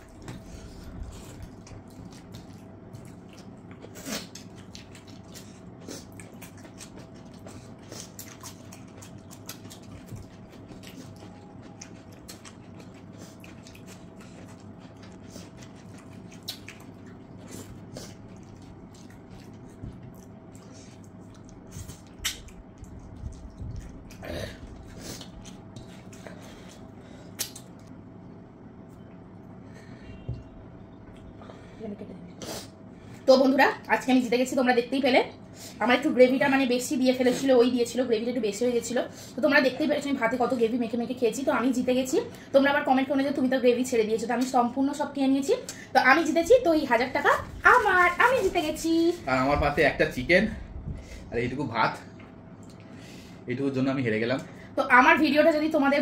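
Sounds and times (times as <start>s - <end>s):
chewing: 0.0s - 27.9s
faint steady hum: 0.0s - 56.0s.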